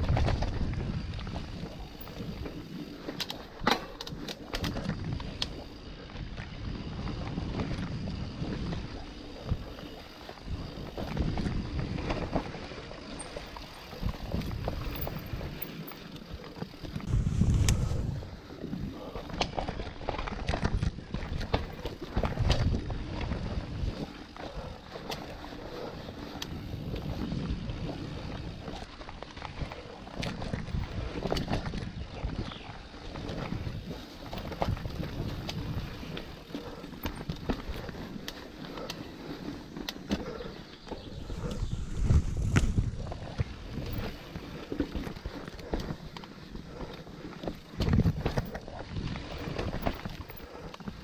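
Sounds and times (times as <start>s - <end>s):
wind buffeting microphone: 0.0s - 3.2s, 4.6s - 51.0s
bike knocks and rattles: 0.0s - 5.4s, 46.8s - 51.0s
bike tyres rolling on dirt: 0.0s - 51.0s.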